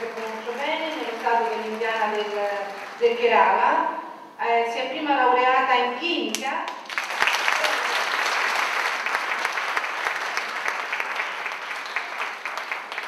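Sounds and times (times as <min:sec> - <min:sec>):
audience applauding: 0:00.0 - 0:03.2, 0:06.8 - 0:13.0.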